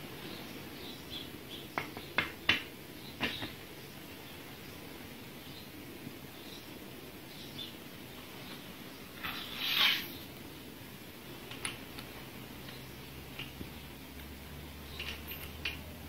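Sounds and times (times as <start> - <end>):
grinder rustling scrape: 9.2 - 10.3
small clicks: 11.4 - 15.9.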